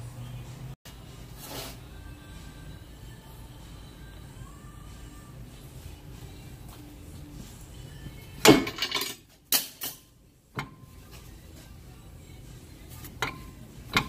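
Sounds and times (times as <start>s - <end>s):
metal clanks and knocks: 8.4s - 11.3s, 13.0s - 14.0s.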